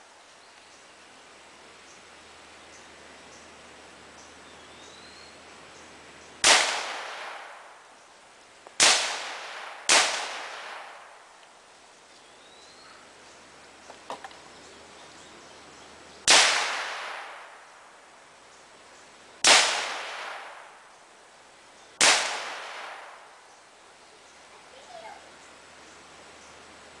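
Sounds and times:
echoing gunshots: 6.4 - 7.7, 8.8 - 11.2, 16.3 - 17.6, 19.4 - 20.8, 22.0 - 23.3.

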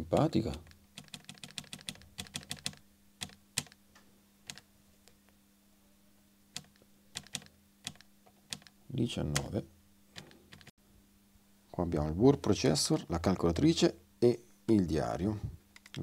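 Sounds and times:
keyboard keys clicking: 0.2 - 3.8, 6.6 - 8.7, 10.2 - 10.7.

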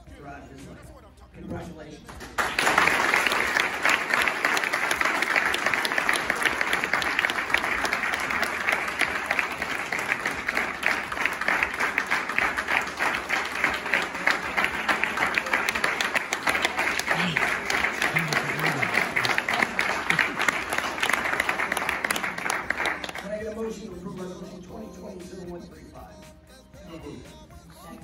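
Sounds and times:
crowd applauding: 2.2 - 23.5.

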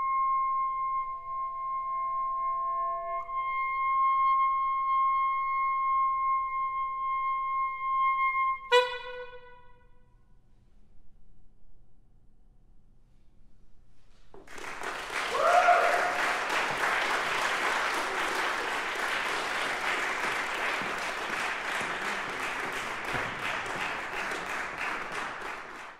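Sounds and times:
audience applause: 14.4 - 25.9
short cheer: 14.5 - 25.7.

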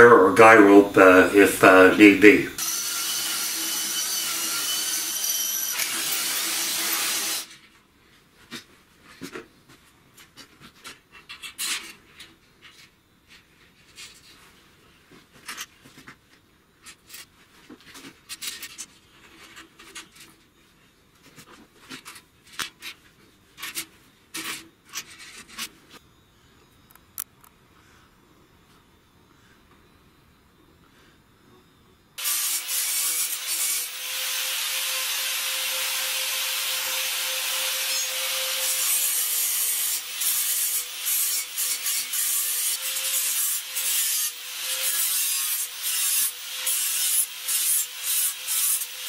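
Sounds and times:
cordless drill drilling metal: 2.6 - 7.5, 32.2 - 49.0.

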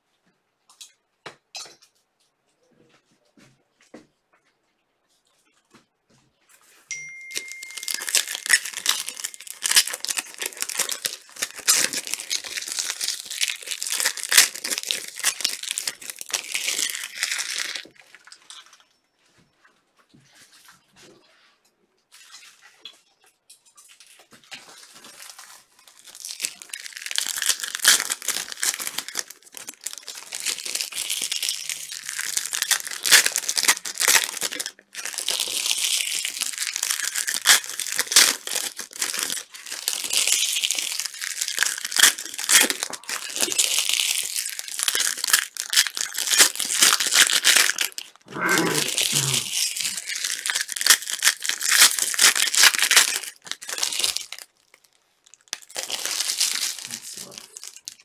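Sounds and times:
plastic wrappers tearing and crinkling: 7.2 - 18.8, 23.9 - 58.0.

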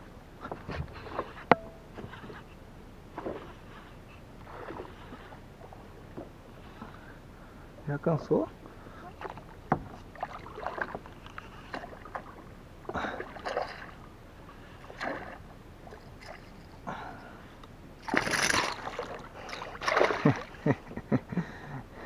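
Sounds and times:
fish thrashing and splashing: 10.1 - 11.1, 13.1 - 14.0, 14.8 - 16.8, 18.0 - 20.6.

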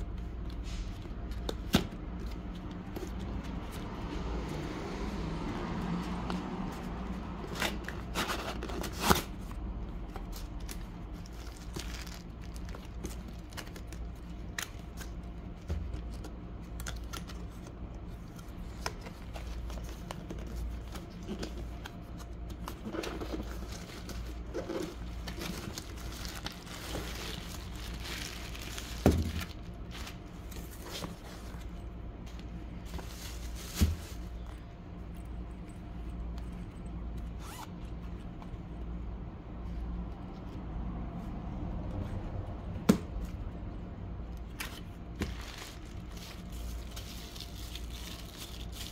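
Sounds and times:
steady low hum: 0.0 - 48.9
cardboard and plastic crinkling: 6.7 - 34.6, 44.4 - 48.9.

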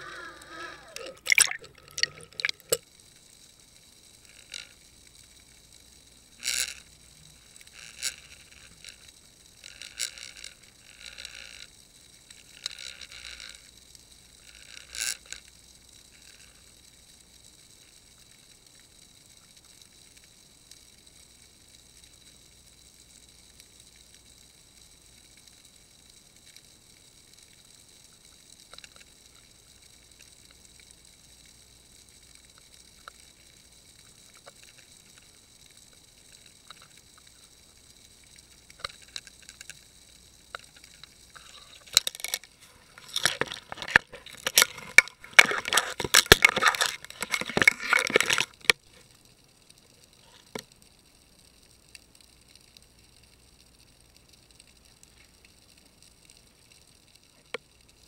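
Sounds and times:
faint steady high hiss: 0.0 - 58.0
light ticks: 1.8 - 58.0
crab scratching camera housing: 41.9 - 48.6.

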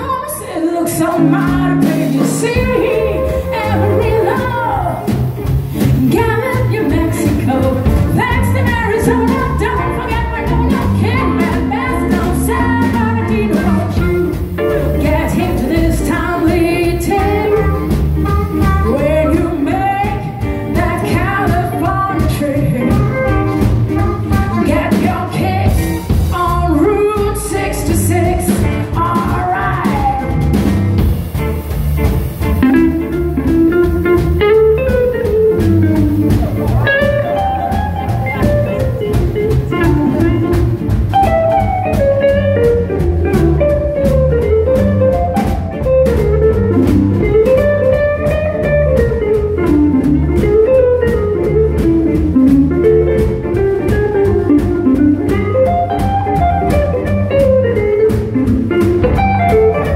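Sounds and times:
woman singing: 0.0 - 5.2, 5.8 - 30.6, 33.8 - 40.8
drum kit: 0.0 - 59.9
electric guitar: 0.0 - 59.9
plucked double bass: 0.8 - 59.9.

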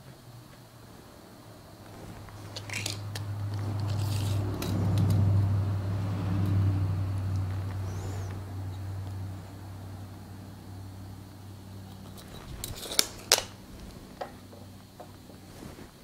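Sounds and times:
low droning hum: 0.2 - 16.0
metal tools clicking and rattling: 2.5 - 3.2, 11.9 - 13.6.

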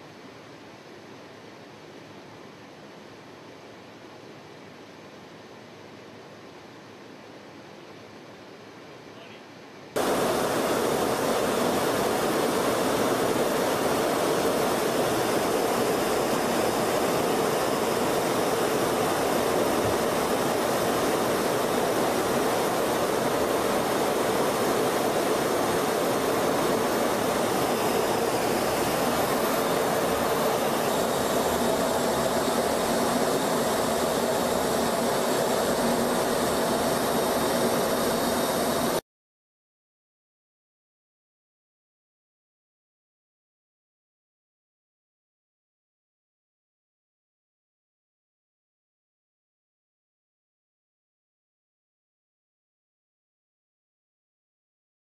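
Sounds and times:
jet engine and airflow rush: 10.0 - 39.0.

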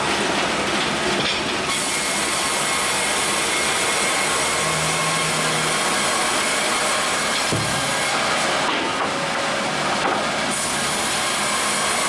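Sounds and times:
band sawmill running with hiss: 0.0 - 12.0.

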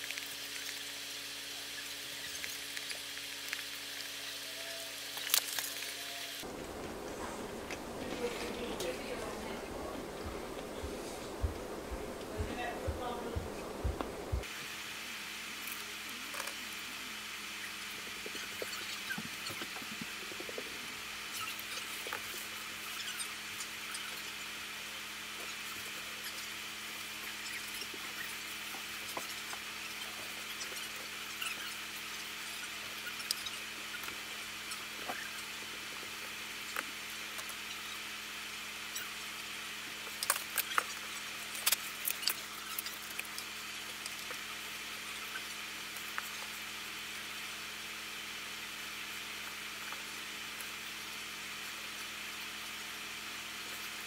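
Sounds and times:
steady hiss and low hum: 5.3 - 54.0
steady hum: 6.4 - 14.5.

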